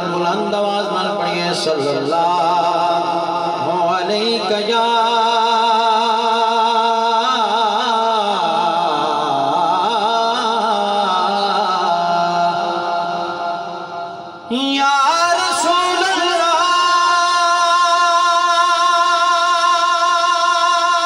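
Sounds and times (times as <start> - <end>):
person singing: 14.3 - 21.0.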